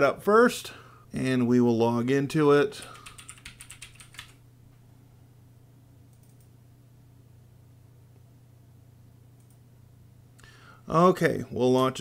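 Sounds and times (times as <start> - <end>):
low hum of room tone: 0.0 - 12.0
keyboard and mouse clicks: 6.1 - 6.5.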